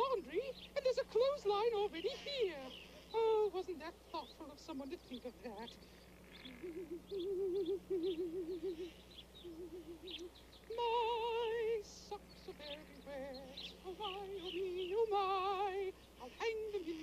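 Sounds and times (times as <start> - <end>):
short chirping notes: 5.7 - 17.0.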